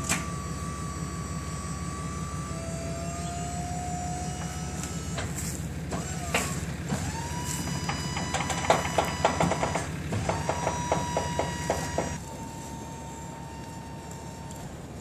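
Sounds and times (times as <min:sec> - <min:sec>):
motor low rumble: 0:00.0 - 0:15.0
sharp knocks: 0:08.2 - 0:12.2.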